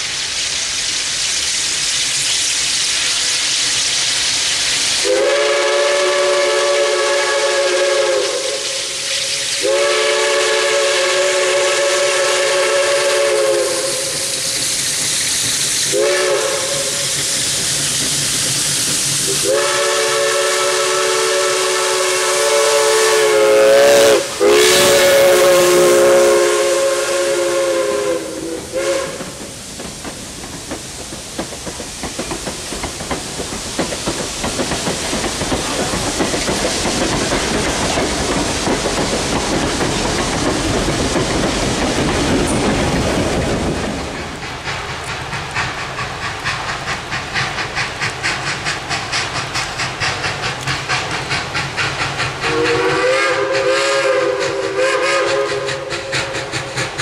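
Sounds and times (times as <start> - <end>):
steam locomotive exhaust chuffs: 0.0 - 57.0
train wheels clattering on rails: 0.0 - 57.0
chime-like train whistle: 9.6 - 14.1, 19.4 - 29.2, 52.5 - 55.7.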